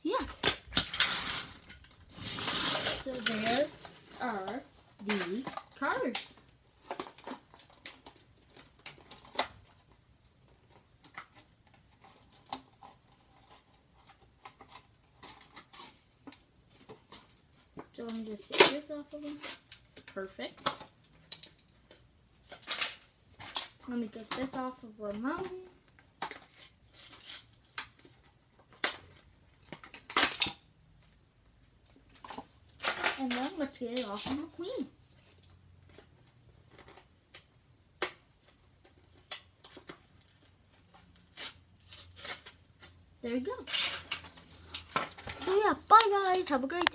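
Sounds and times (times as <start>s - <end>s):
plastic packaging crinkling: 0.1s - 20.9s, 38.3s - 46.9s.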